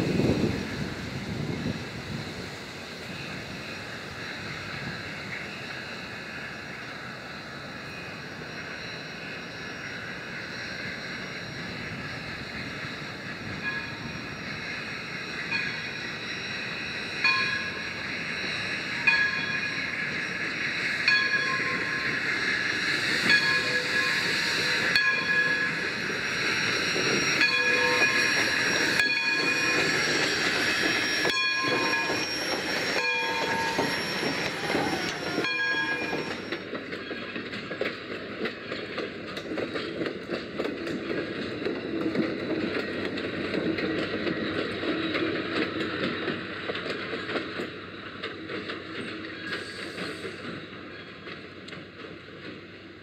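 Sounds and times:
steam locomotive passing: 0:00.0 - 0:53.0
locomotive bell ringing: 0:04.8 - 0:37.6
train cars clicking over rail joints: 0:23.2 - 0:52.9.

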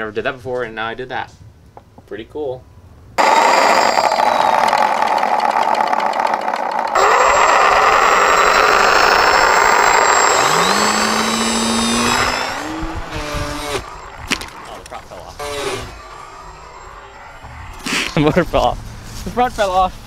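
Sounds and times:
electric motors whining: 0:03.2 - 0:18.5.

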